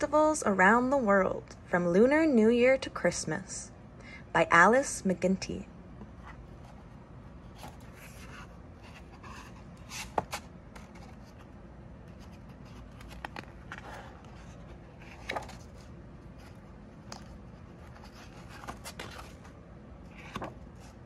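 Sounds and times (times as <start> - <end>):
book pages turning: 6.0 - 21.0.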